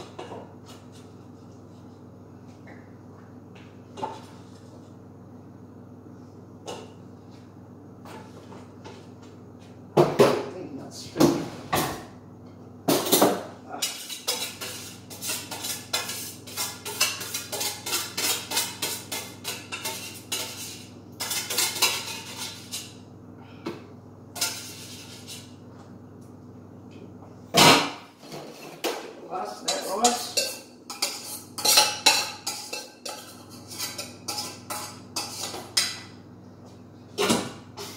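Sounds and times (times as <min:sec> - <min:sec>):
metal spoon scraping a pot: 0:13.8 - 0:23.0, 0:24.4 - 0:25.5, 0:29.6 - 0:35.6.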